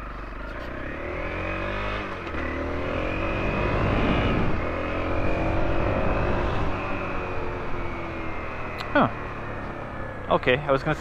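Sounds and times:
motorcycle engine accelerating: 0.0s - 11.0s.

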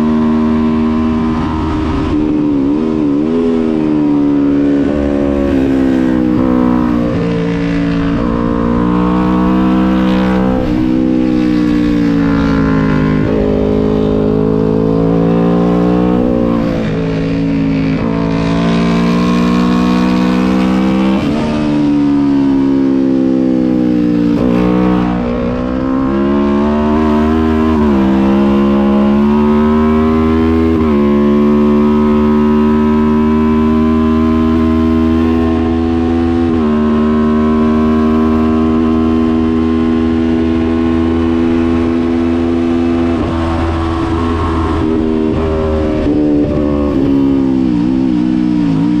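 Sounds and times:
motorcycle engine accelerating: 0.0s - 49.0s.

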